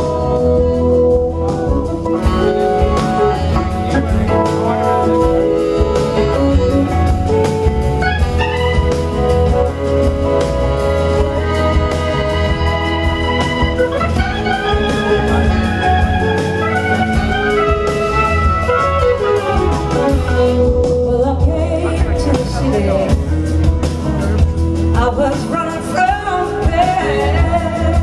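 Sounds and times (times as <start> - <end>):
organ chords: 0.0 - 20.9
bass and drums: 0.0 - 28.0
electric guitar gliding: 0.0 - 28.0
woman singing: 20.3 - 23.4, 24.9 - 28.0.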